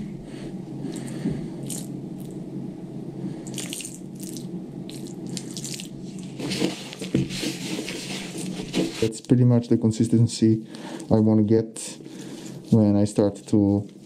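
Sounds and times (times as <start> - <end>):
gloved hand rubbing damp mix: 5.0 - 9.3, 12.0 - 14.0.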